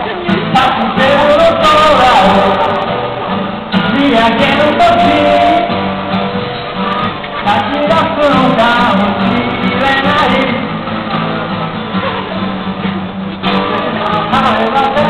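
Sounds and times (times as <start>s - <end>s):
man singing: 0.0s - 5.9s, 7.3s - 11.3s, 13.4s - 15.0s
acoustic guitar strumming: 0.0s - 15.0s.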